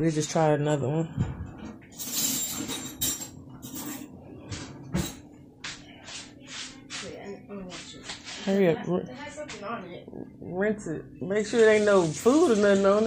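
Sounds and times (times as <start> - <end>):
rustling at kitchen counter: 1.2 - 8.7, 11.4 - 13.0.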